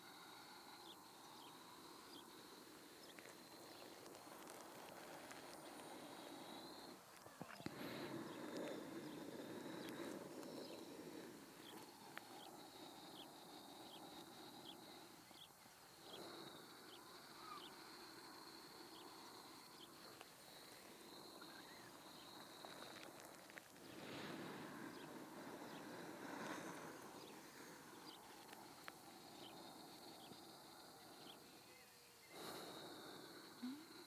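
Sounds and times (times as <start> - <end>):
faint background hiss: 0.0 - 34.0
soft ticks: 28.4 - 29.0.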